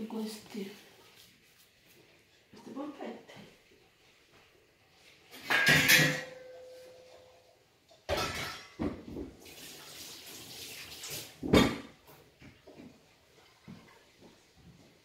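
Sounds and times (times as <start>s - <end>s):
tap water running: 8.9s - 14.6s.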